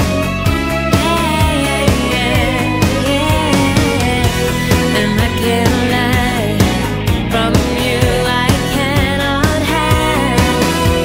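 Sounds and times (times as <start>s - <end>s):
person singing pop song: 0.8s - 11.0s
steady drum beat: 1.9s - 8.9s.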